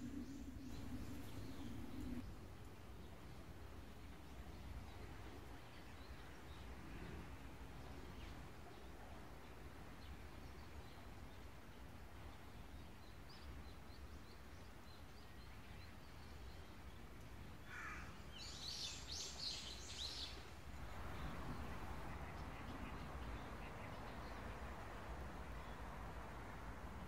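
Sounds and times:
faint low rumble: 0.0 - 6.1.

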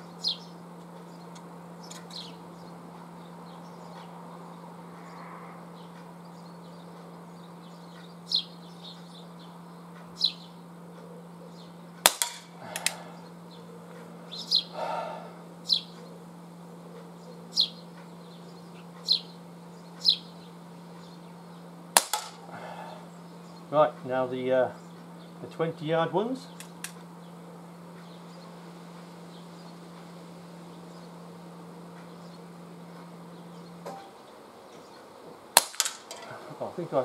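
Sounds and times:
bird chirping: 0.0 - 12.0, 12.7 - 21.9, 22.8 - 25.8, 26.4 - 35.4
air revolver shots: 12.0 - 13.0, 22.0 - 22.5, 35.6 - 36.3
metallic knocks of tin can: 12.1 - 12.5, 22.0 - 22.4.

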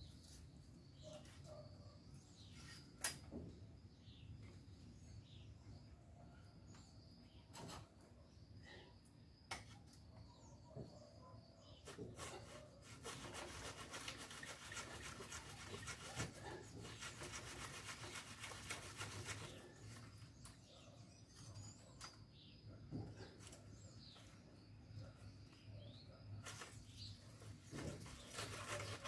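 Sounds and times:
fast rasping rubbing strokes: 11.9 - 20.0, 27.9 - 29.0.

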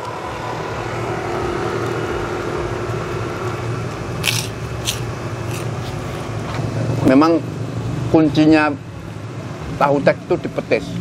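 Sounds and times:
steady low hum: 0.0 - 11.0
crunchy food bites: 4.2 - 6.0.

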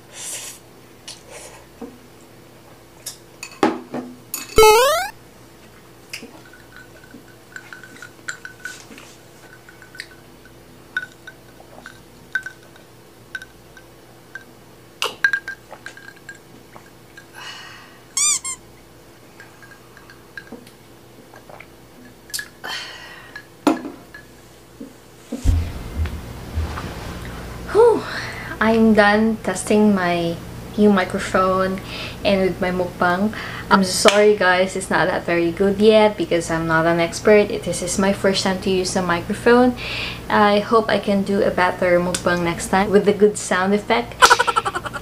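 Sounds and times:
squeaky whistling slurps: 18.2 - 18.6.

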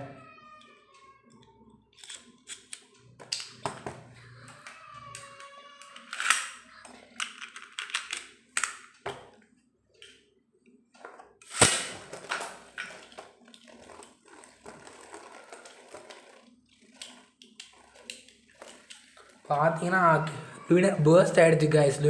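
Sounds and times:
spinning top whirring: 12.6 - 20.2.

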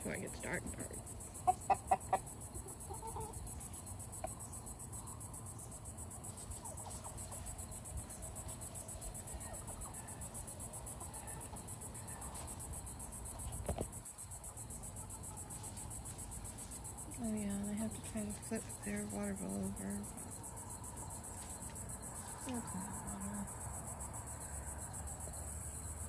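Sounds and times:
crickets chirping: 0.0 - 26.0
chicken clucks: 0.2 - 4.4, 6.3 - 16.7.

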